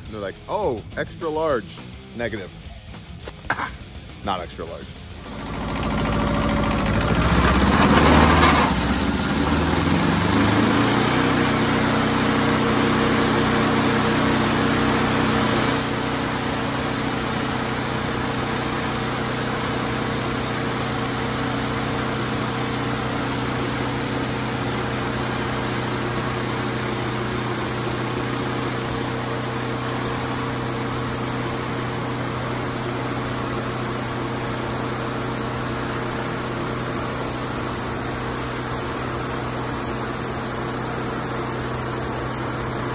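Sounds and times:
sawmill engine running: 4.3 - 42.9.

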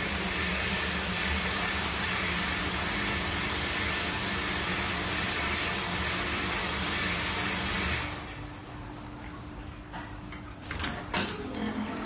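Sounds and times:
dishwasher water spray and pump: 0.0 - 9.2.

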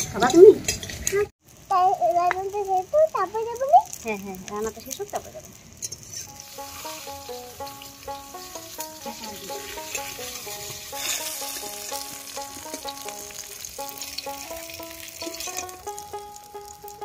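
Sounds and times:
hot oil sizzling in a wok: 0.0 - 17.0
plucked-string background tune: 6.3 - 17.0.

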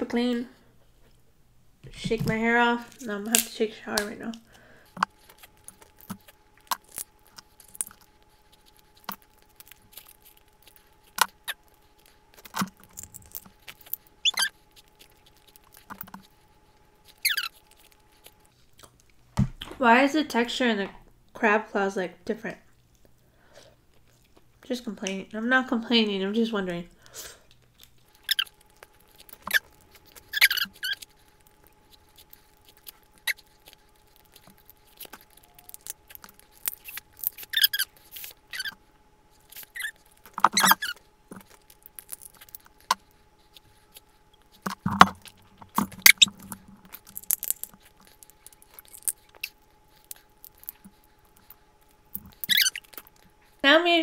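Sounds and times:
crab shells cracking: 2.9 - 19.2, 27.0 - 53.5
wet squeaky eating sounds: 5.1 - 19.1, 27.6 - 53.6.

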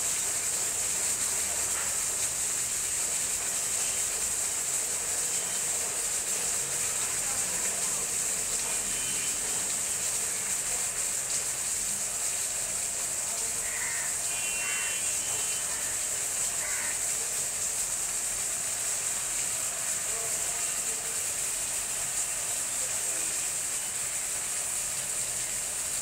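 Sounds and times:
high-pitched outdoor hiss: 0.0 - 26.0
faint bird calls: 13.6 - 14.9, 16.6 - 17.0.

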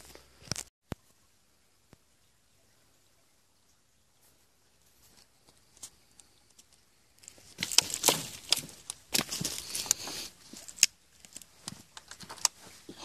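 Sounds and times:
rustling: 4.2 - 13.0
dry brush crackling and snapping: 5.5 - 12.6.

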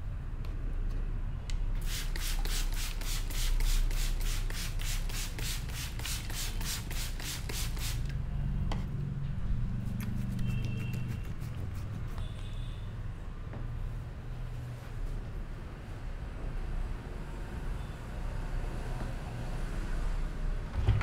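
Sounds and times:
hands rubbing through hair: 9.7 - 12.3.

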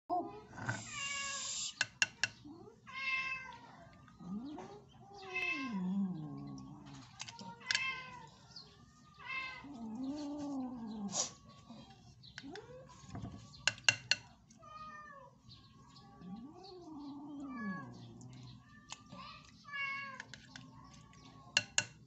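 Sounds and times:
cat meowing: 2.9 - 3.6, 5.1 - 6.0, 16.2 - 20.3.

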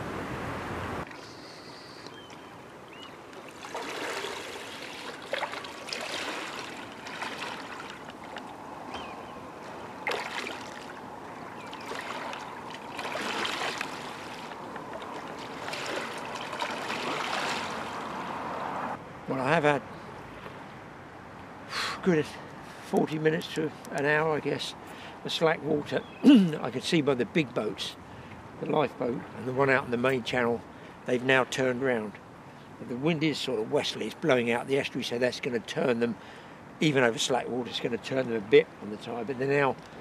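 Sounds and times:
water lapping and sloshing: 2.2 - 18.8.

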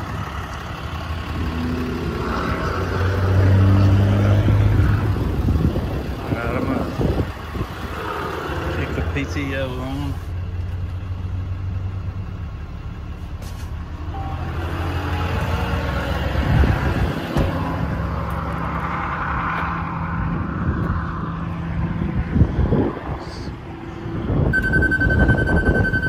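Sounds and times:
diesel engine idling: 0.0 - 3.0, 5.2 - 15.6.

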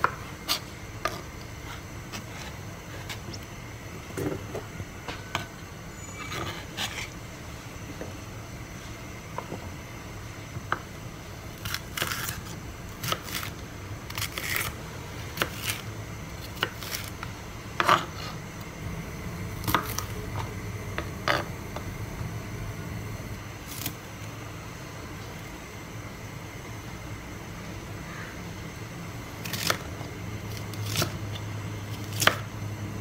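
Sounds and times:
low steady hum: 0.0 - 33.0
knife crunching through pepper: 11.6 - 18.4.

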